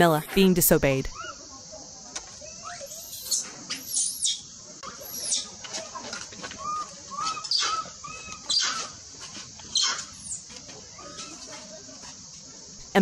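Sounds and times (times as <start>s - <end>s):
infant macaque screaming: 1.1s - 1.5s, 2.4s - 5.6s, 6.5s - 9.0s, 9.7s - 11.5s.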